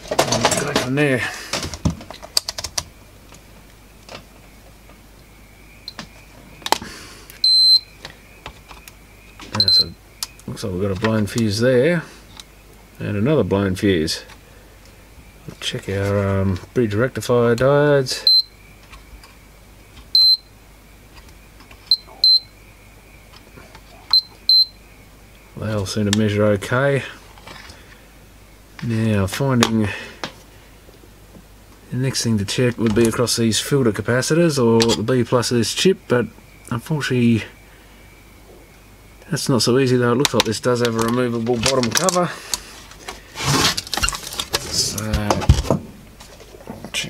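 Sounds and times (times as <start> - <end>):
multimeter continuity beep: 7.3 - 8.0, 9.5 - 10.4, 18.2 - 18.6, 20.1 - 20.6, 21.9 - 22.6, 24.1 - 24.8.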